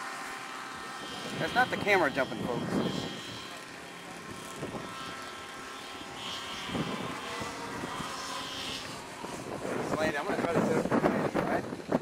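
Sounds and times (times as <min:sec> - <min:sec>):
model plane motor whining: 0:00.0 - 0:12.0.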